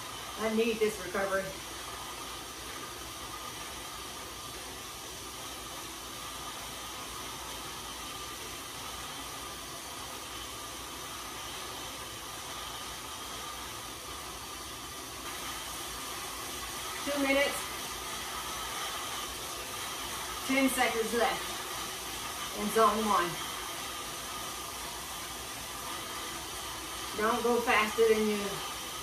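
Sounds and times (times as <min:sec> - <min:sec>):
bike tyres whirring on rollers: 0:00.0 - 0:29.0.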